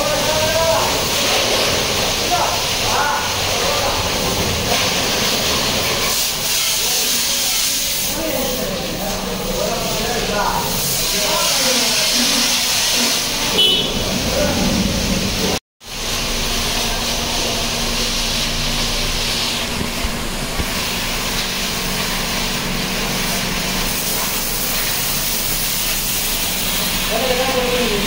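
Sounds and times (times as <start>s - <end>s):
voices: 0.0s - 15.6s, 24.0s - 28.0s
steady spray hiss: 0.0s - 28.0s.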